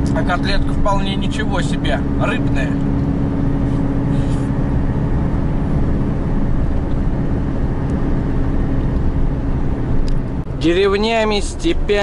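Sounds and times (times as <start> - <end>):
van engine and road noise: 0.0 - 12.0.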